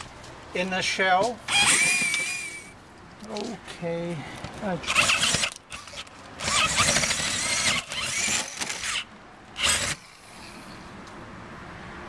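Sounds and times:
drill boring through plywood: 0:01.5 - 0:02.7, 0:04.9 - 0:10.2.

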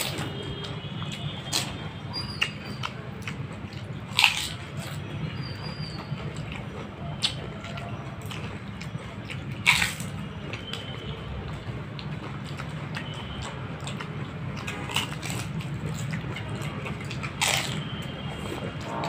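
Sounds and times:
wet chewing: 0:00.0 - 0:19.0
crisp shells crunching: 0:04.2 - 0:04.6.

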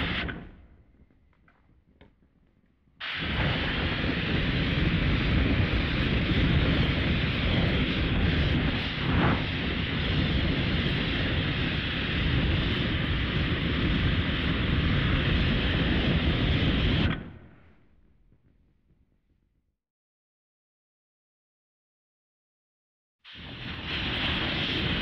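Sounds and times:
loud rushing roar: 0:03.0 - 0:17.4.

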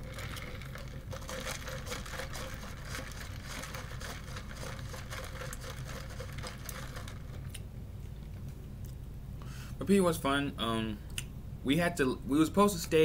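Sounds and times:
crackling and clicking of eating: 0:00.0 - 0:09.1
steady low hum: 0:00.0 - 0:13.0.

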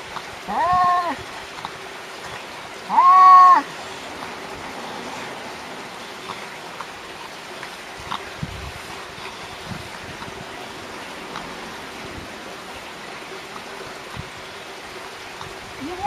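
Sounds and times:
steady rushing noise: 0:03.6 - 0:15.9
faint ticks: 0:11.2 - 0:11.6.

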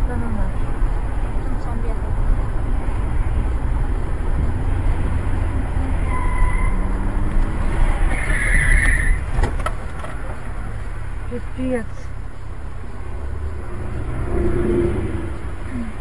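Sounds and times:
car road noise rumbling: 0:00.0 - 0:16.0
harsh screech: 0:08.0 - 0:09.2.

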